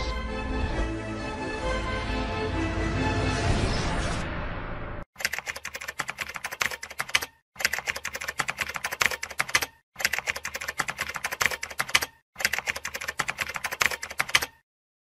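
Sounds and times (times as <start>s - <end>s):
computer keyboard typing: 5.2s - 14.6s.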